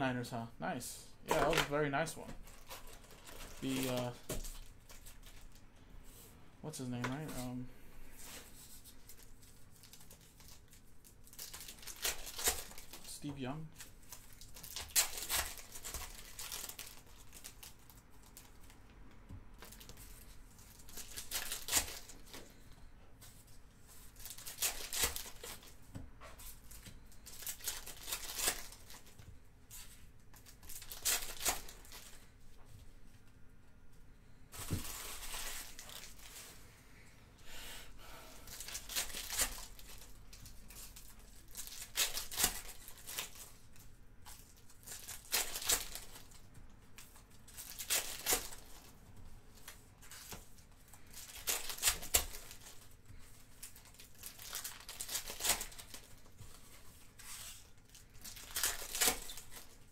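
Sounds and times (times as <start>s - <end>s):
foil wrappers tearing and crinkling: 2.5s - 5.5s, 9.1s - 18.7s, 19.6s - 22.6s, 24.1s - 25.8s, 26.7s - 29.2s, 30.3s - 32.2s, 34.6s - 36.5s, 38.5s - 46.4s, 47.0s - 49.0s, 49.6s - 56.4s, 57.1s - 59.9s.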